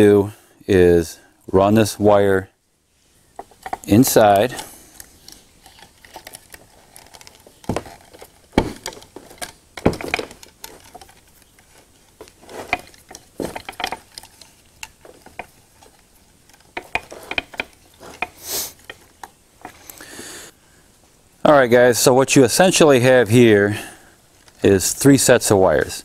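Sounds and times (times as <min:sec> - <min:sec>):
wire clicks taps and rustles: 0:03.4 - 0:20.0
sharp knocks: 0:07.7 - 0:10.4.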